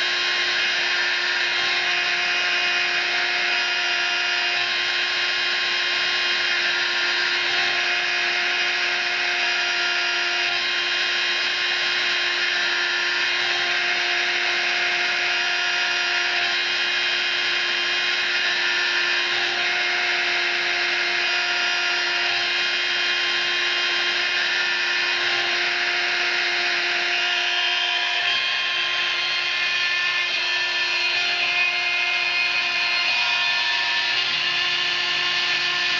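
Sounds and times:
rotary tool milling metal whine: 0.0s - 35.9s.

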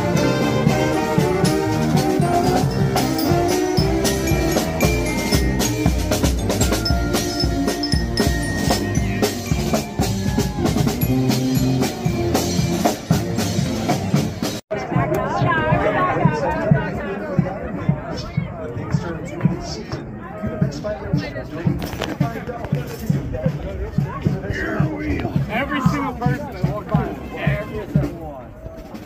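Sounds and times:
saxophones playing tune: 0.0s - 14.2s
steady drum beat: 0.0s - 19.6s
sousaphone bass line: 0.8s - 14.2s.

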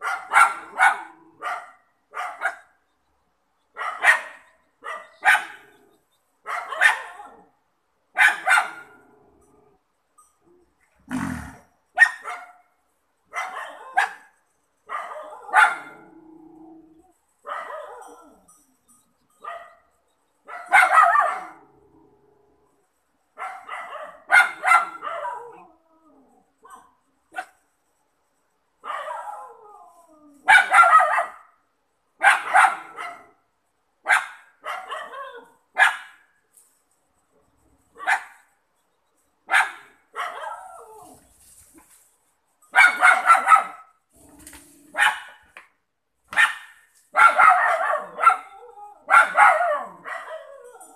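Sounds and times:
dogs barking: 0.0s - 2.7s, 3.8s - 5.8s, 6.5s - 7.4s, 8.2s - 9.0s, 14.9s - 16.0s, 20.5s - 21.6s, 23.4s - 25.6s, 30.5s - 31.5s, 32.2s - 33.4s, 34.1s - 36.2s, 39.5s - 40.7s, 42.8s - 43.9s, 44.9s - 45.6s, 46.3s - 50.7s.

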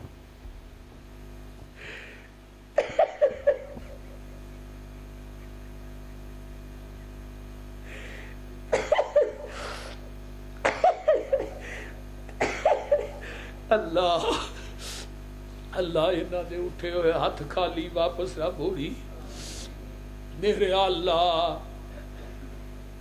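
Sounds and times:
man sobbing: 1.8s - 4.3s, 7.9s - 15.1s, 20.5s - 22.5s
sharp in-breaths: 7.8s - 8.4s.

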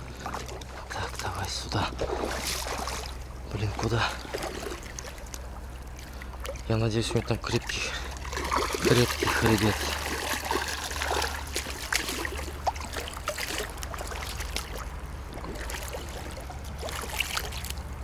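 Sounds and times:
steady low hum: 0.0s - 18.0s
water sloshing and trickling: 0.0s - 18.0s.

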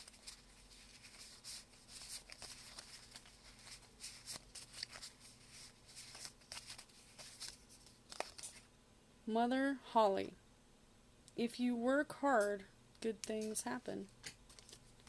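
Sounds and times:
cards being shuffled: 0.0s - 8.6s, 14.2s - 15.0s.

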